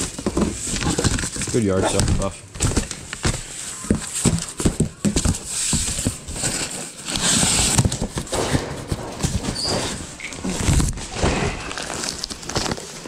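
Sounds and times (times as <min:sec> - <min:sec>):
cardboard box knocks and bumps: 0:00.0 - 0:11.6
cardboard scraping and rustling: 0:00.0 - 0:13.0.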